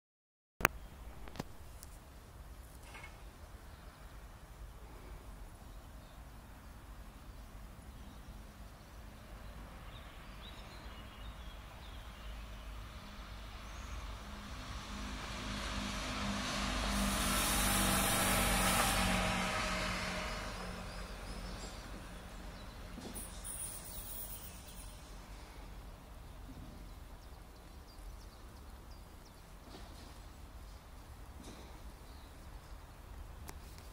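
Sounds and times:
diesel railcar passing by: 5.9s - 27.5s.

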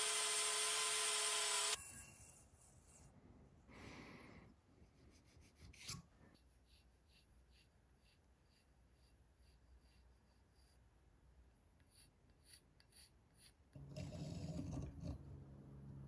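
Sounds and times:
pencil scratching on steel rail: 5.4s - 10.9s, 11.8s - 15.3s.

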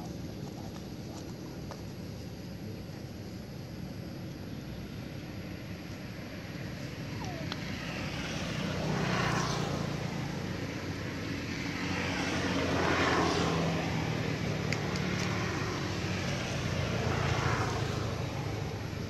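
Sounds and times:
traffic engine drone: 0.0s - 19.0s
vehicles passing: 6.0s - 19.0s.

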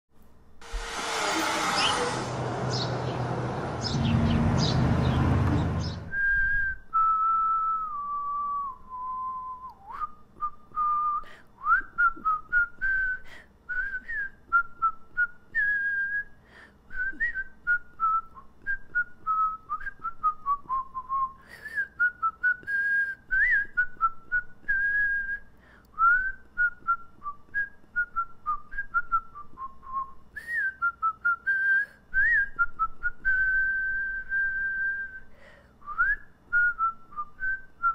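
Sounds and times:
loud rushing noise: 0.6s - 6.2s
person whistling a tune: 6.0s - 37.9s.

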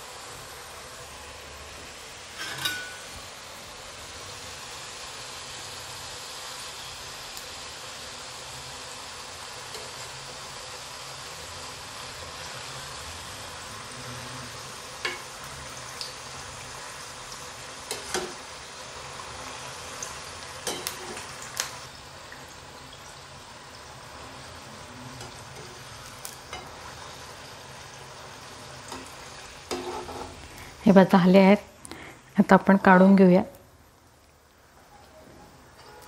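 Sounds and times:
deep-frying sizzle in hot oil: 0.0s - 36.0s
metal spoon clinking against pan: 2.4s - 3.1s, 20.6s - 21.1s.

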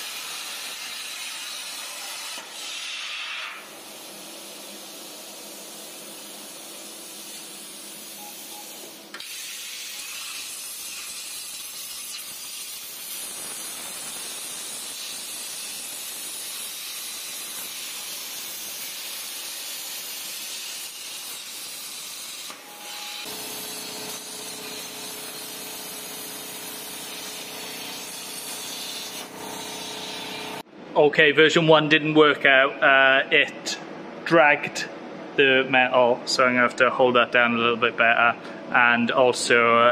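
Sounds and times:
plasma cutter hissing: 0.0s - 30.6s.

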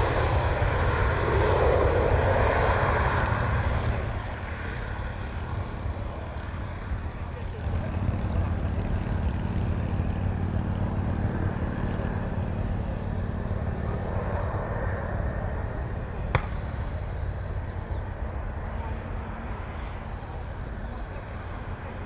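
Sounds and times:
jet engines at takeoff thrust: 0.0s - 22.0s.

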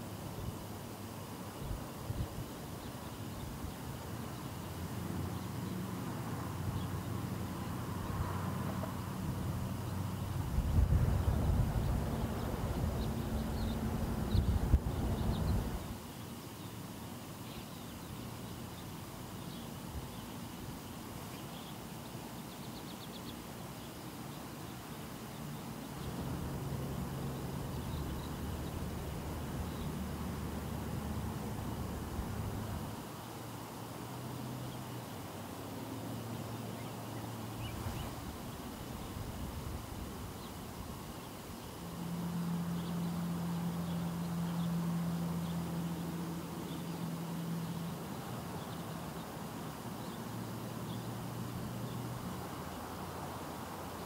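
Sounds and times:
outdoor background noise: 0.0s - 54.0s
low engine-like hum: 3.6s - 15.9s, 25.2s - 54.0s.

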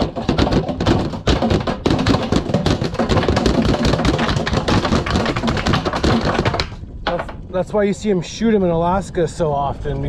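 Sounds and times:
fish thumping inside a hatch: 0.0s - 7.3s.

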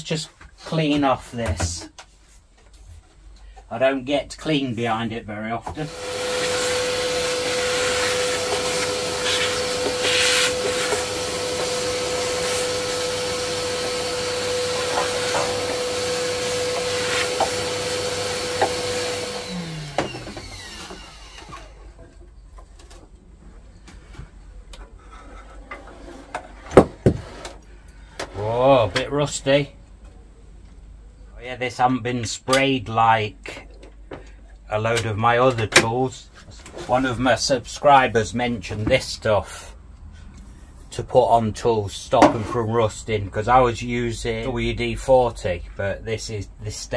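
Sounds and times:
workshop vacuum whining: 5.6s - 29.4s.

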